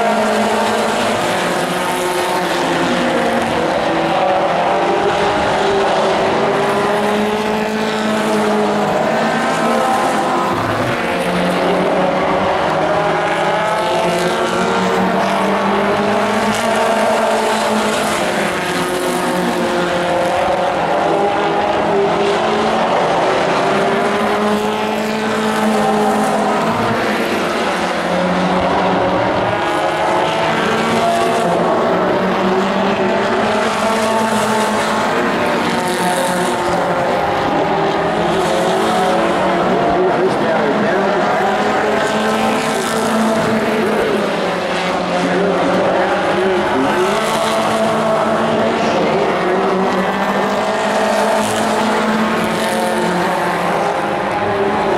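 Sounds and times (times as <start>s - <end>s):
race truck engines revving: 0.0s - 54.9s.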